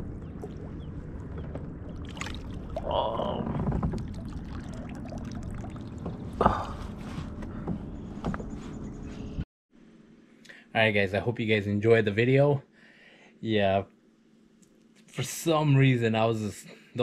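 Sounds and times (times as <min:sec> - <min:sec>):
low outdoor rumble: 0:00.0 - 0:12.6.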